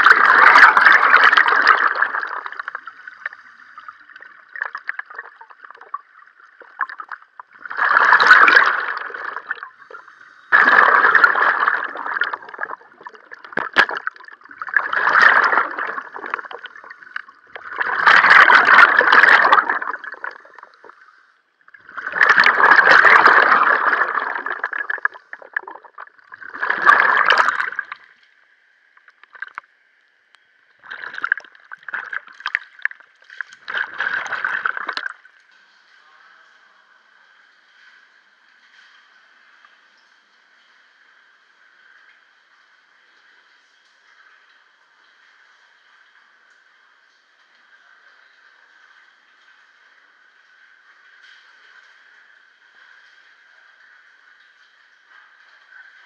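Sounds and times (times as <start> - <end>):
breath bubbling from regulator: 0.0 - 28.1, 30.8 - 35.2
faint steady hiss: 1.3 - 11.2, 19.8 - 22.3.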